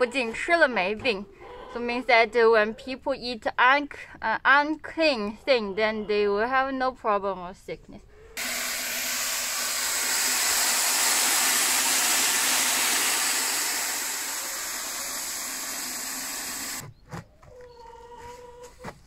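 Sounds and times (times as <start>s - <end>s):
hose water rushing into bucket: 8.4s - 16.8s.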